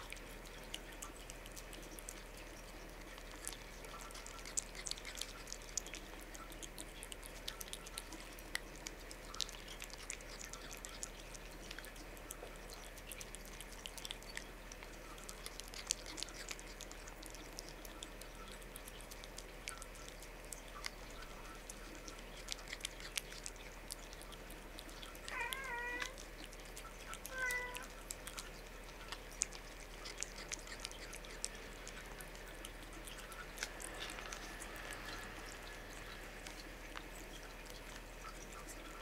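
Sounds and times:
cat licking: 0:00.0 - 0:39.0
cat mewing: 0:25.3 - 0:26.2, 0:27.2 - 0:27.9.

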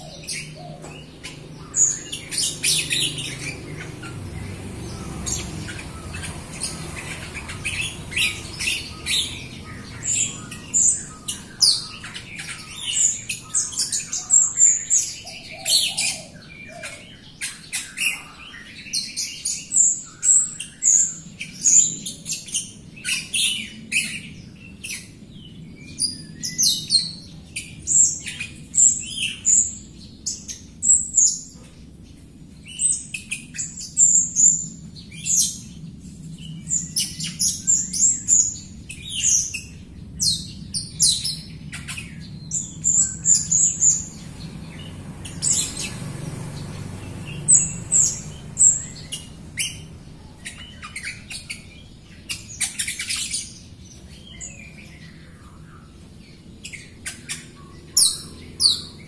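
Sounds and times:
caged bird chirping and whistling: 0:00.0 - 0:25.1, 0:32.7 - 0:59.0.

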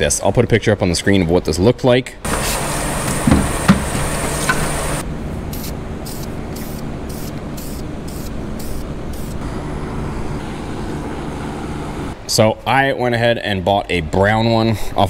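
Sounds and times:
spray can spraying bursts: 0:04.4 - 0:09.4.

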